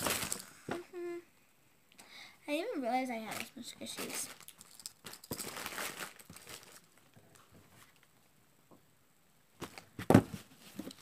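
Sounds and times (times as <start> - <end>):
plastic packaging rustling: 0.0 - 0.6, 3.3 - 7.2.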